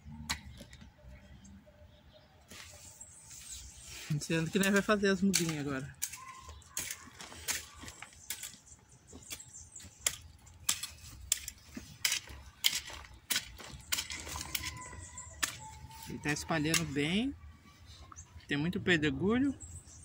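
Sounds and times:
metal rake scraping pebbly soil: 0:02.5 - 0:08.7, 0:09.3 - 0:17.0.

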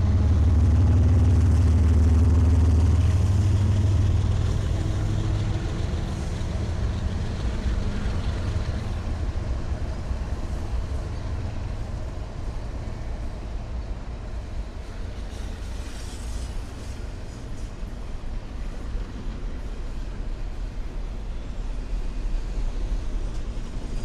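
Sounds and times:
vehicle passing rumble: 0:00.0 - 0:09.6.

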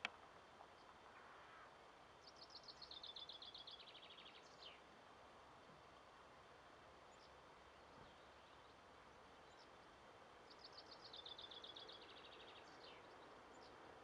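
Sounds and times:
songbird trilling: 0:01.2 - 0:04.8, 0:10.5 - 0:13.8.

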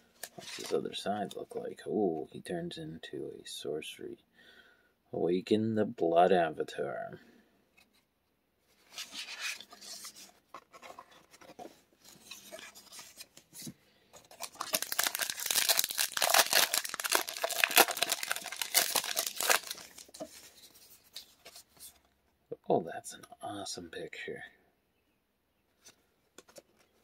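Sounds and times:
foil wrapper tearing and crinkling: 0:14.2 - 0:20.2.

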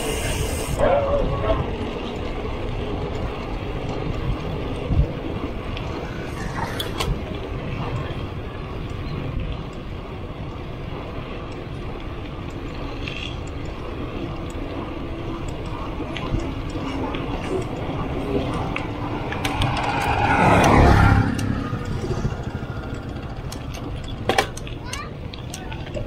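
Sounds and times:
bike clicks and rattles: 0:00.0 - 0:26.0
bike tyres rumbling on concrete: 0:00.0 - 0:26.0
wind noise: 0:00.0 - 0:26.0.

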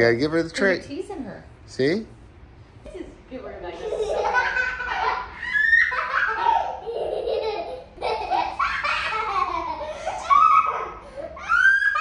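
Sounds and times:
small child laughing: 0:03.8 - 0:12.0.

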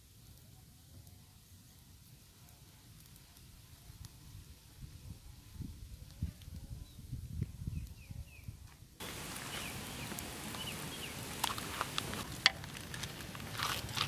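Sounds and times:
wood fire crackling and popping: 0:00.0 - 0:06.6, 0:08.5 - 0:14.0
sticks rustling in fire: 0:08.7 - 0:14.0.

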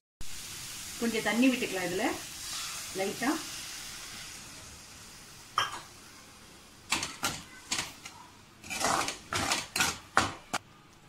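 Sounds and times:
water sizzling in hot pan: 0:00.2 - 0:10.5
metal ladle scraping pan: 0:02.4 - 0:03.0, 0:06.9 - 0:10.1.

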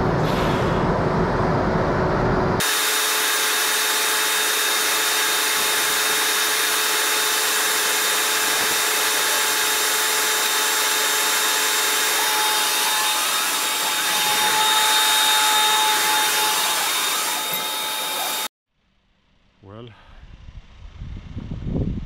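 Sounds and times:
trolleybus whirring hiss: 0:00.0 - 0:02.2.

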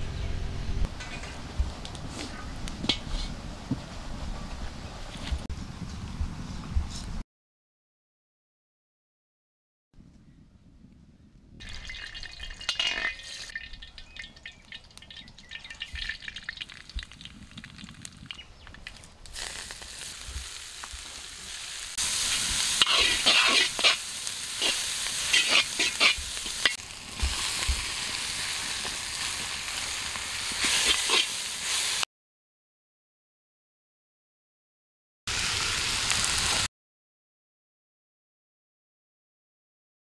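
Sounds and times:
food sizzling in a pan: 0:19.3 - 0:32.0, 0:35.3 - 0:36.7
utensil scraping a pan: 0:22.2 - 0:26.8, 0:30.6 - 0:31.4.

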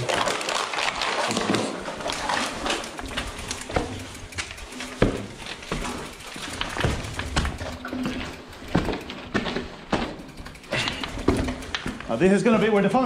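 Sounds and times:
bike rattling over rubble: 0:00.0 - 0:13.0
footsteps on rubble and glass: 0:04.8 - 0:10.3.

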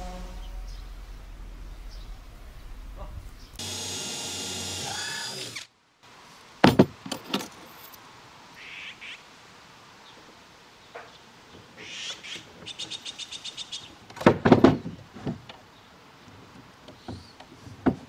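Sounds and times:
bird chirping and trilling: 0:00.0 - 0:03.6.

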